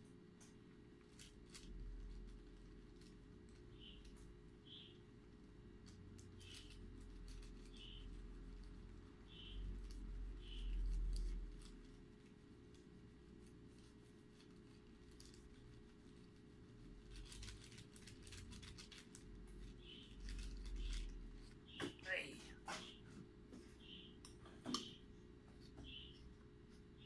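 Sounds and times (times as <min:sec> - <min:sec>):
paper rustling: 0:05.2 - 0:21.9.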